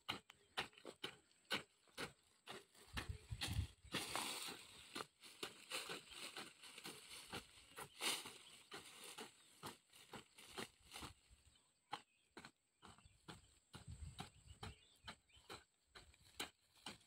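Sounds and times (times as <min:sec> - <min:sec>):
dry leaves crackling: 0:04.0 - 0:11.0
hoe chopping into dry soil: 0:11.9 - 0:17.0.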